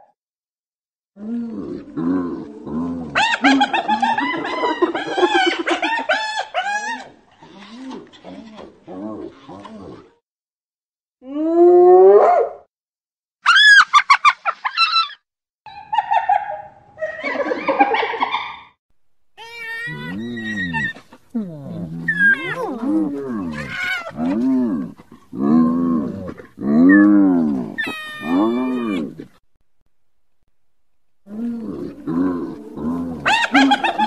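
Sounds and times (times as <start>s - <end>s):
hyenas calling: 19.4s - 29.4s, 31.3s - 34.0s.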